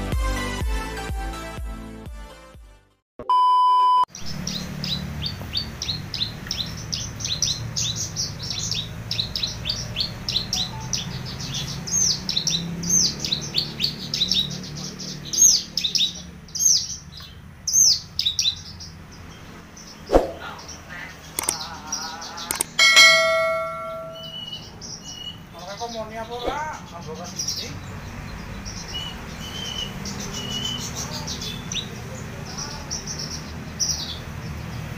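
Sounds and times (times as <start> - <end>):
loud electronic beep: 3.2 - 4.1
bird singing high chirps: 4.1 - 21.8, 22.4 - 34.2.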